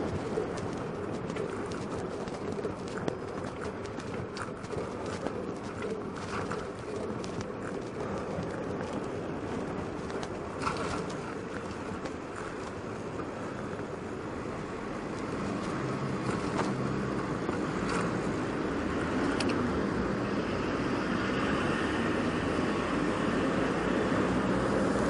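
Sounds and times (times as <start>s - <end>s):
road and wind rush: 0.0s - 25.0s
street traffic noise: 0.0s - 25.0s
faint clicks: 19.2s - 19.6s.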